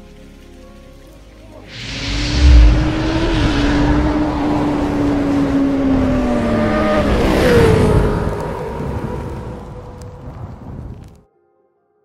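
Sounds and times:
heavy low boom: 1.7s - 6.7s
motorcycle engine revving: 1.7s - 8.8s
rushing whoosh: 1.7s - 9.5s.

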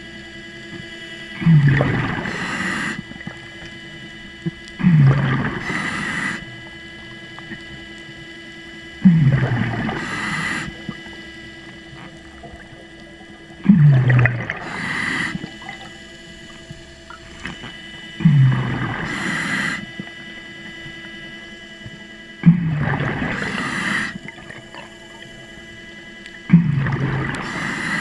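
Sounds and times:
underwater scooter motor hum: 0.0s - 28.0s
diver breathing through regulator: 1.4s - 3.7s, 4.8s - 6.9s, 9.0s - 11.2s, 13.6s - 16.0s, 17.5s - 20.2s, 22.4s - 24.9s, 26.5s - 28.0s.

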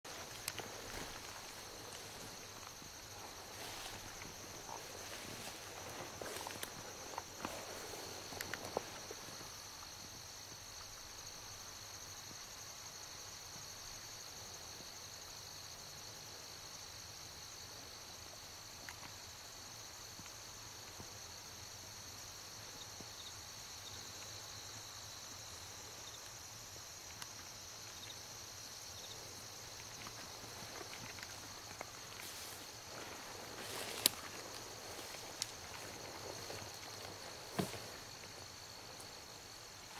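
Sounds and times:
footsteps on dirt track: 0.0s - 10.1s, 29.6s - 39.9s
high-pitched insect chorus: 0.1s - 39.9s.

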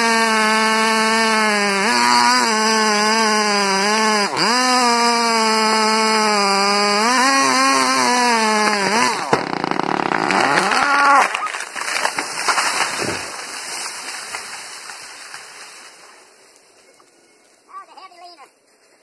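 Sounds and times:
chainsaw cutting: 0.0s - 16.0s
sharp wood crack: 0.0s - 16.0s
tree crashing down: 1.8s - 16.2s.

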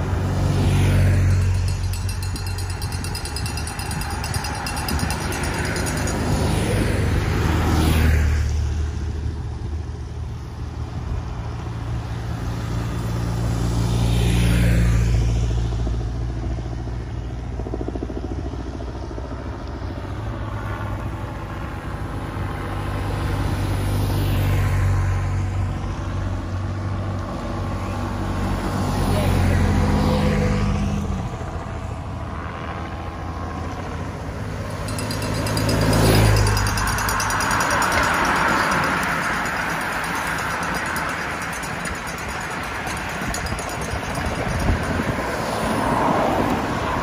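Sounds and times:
motorcycles passing by: 0.0s - 9.8s, 10.5s - 47.0s.

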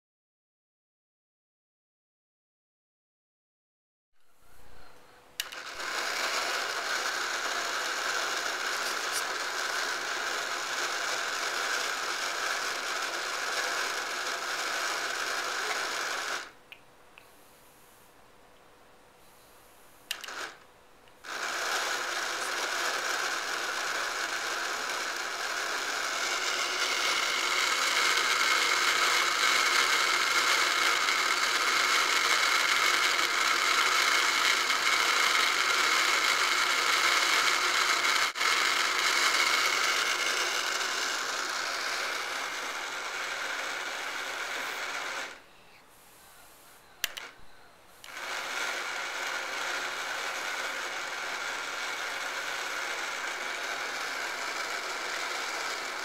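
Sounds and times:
toy motor and gears whirring: 5.5s - 16.6s, 20.1s - 20.6s, 21.2s - 45.4s, 46.2s - 56.0s
switch click: 47.0s - 47.3s.

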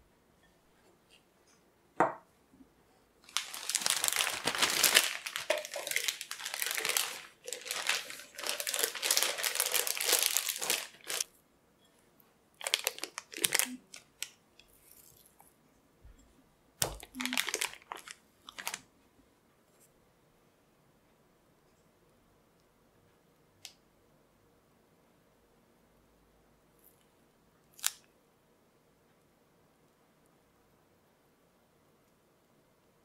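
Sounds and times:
plastic bag crinkling: 3.2s - 11.3s, 12.6s - 14.3s, 16.8s - 18.8s.

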